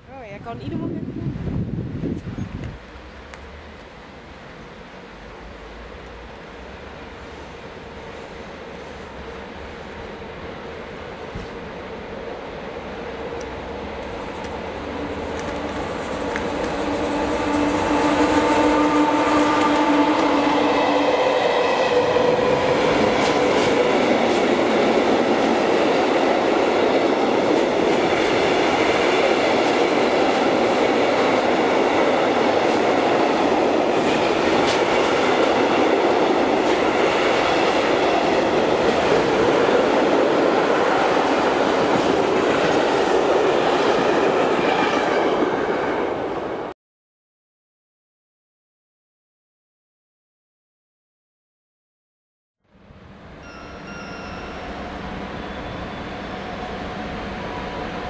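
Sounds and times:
train wheels rumbling on rails: 0.1s - 46.4s
locomotive motor whine: 13.4s - 23.4s.

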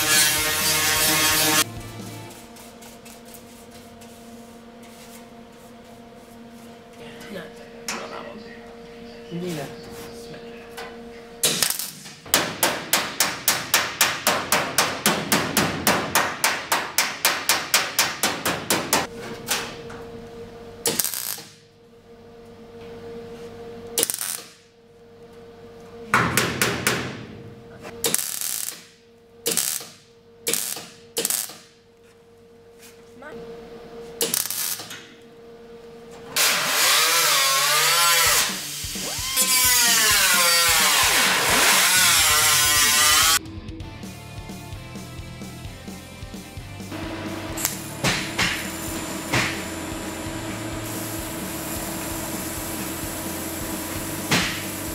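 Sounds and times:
welder buzzing pulses: 0.0s - 2.6s, 20.8s - 21.6s, 24.0s - 24.6s, 28.0s - 28.9s, 34.2s - 34.9s, 36.4s - 43.4s, 46.9s - 54.9s
steady hum: 0.0s - 36.8s, 43.2s - 54.9s
pneumatic grinder running: 46.9s - 54.9s.

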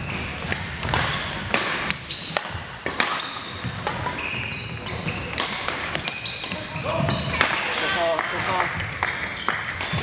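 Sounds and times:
sneakers squeaking on floor: 0.0s - 10.0s
racket hitting shuttlecock: 0.1s - 4.2s, 5.0s - 7.7s.

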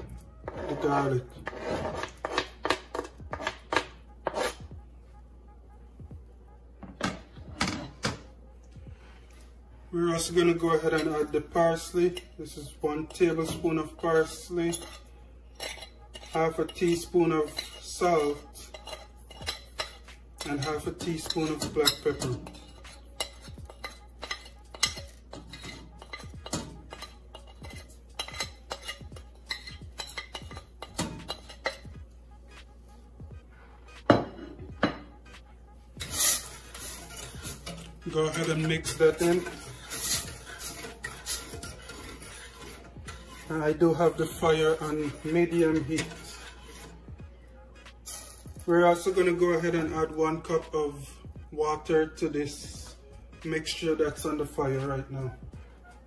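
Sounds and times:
metal spoon scraping on ceramic plate: 0.0s - 4.7s, 10.6s - 32.6s, 35.9s - 47.1s.

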